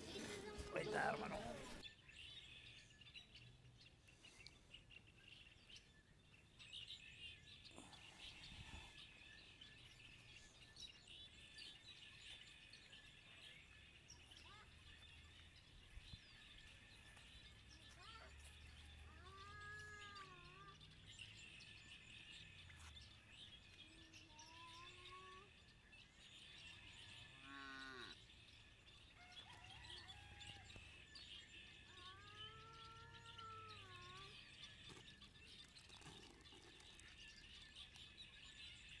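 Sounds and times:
birds chirping: 0.0 - 39.0
faint cattle mooing: 27.4 - 28.2.

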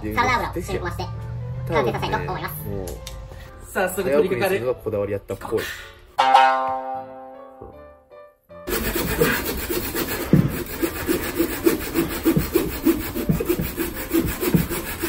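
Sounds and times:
handsaw cutting log: 8.7 - 15.0.

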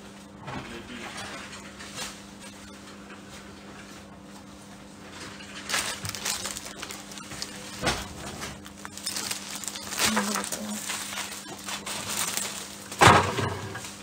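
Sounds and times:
plastic wrapping crinkling: 5.2 - 14.0.

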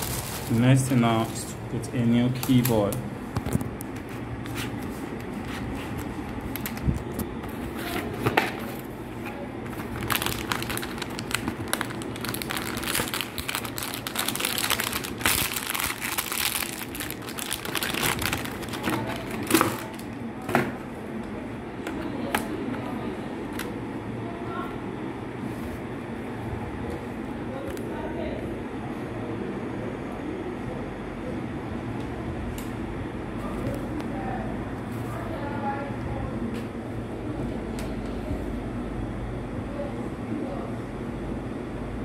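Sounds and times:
packaging crinkling and rustling: 0.0 - 1.5, 2.3 - 20.2.

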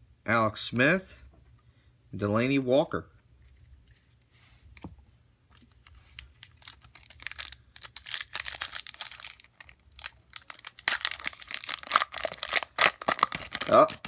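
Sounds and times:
foil pack crinkling and tearing: 6.1 - 14.0.

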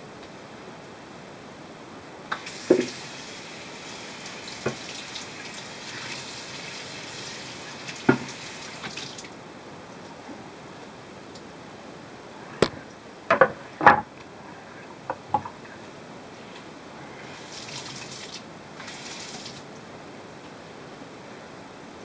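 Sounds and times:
wooden cutting boards knocking: 2.7 - 2.9, 12.6 - 14.1.

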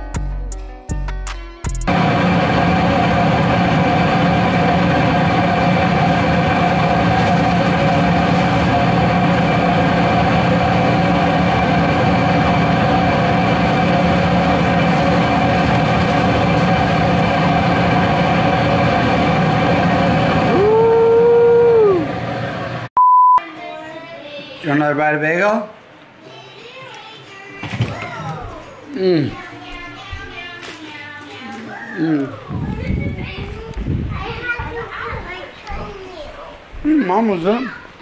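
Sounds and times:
kitchen equipment humming: 1.9 - 22.9, 27.3 - 36.2.

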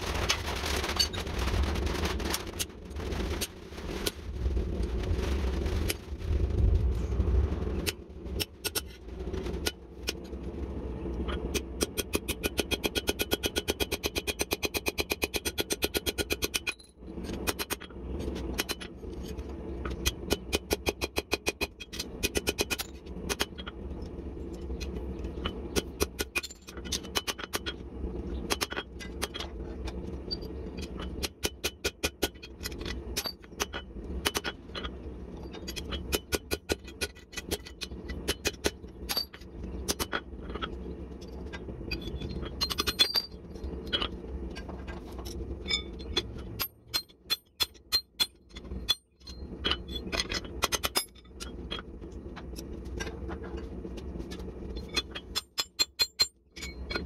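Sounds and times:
steady low hum: 0.0 - 15.6, 16.2 - 55.5.

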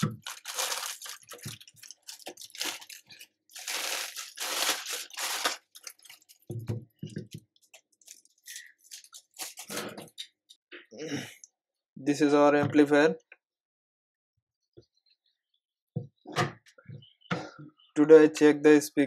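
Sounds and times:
plastic bag crinkling: 0.0 - 6.5, 7.6 - 9.7.

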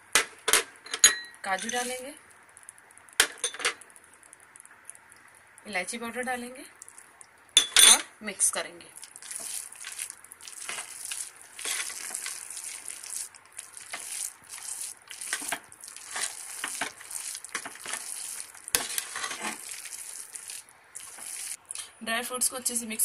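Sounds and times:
metal spoon scraping pot: 11.6 - 12.4, 18.8 - 19.6.

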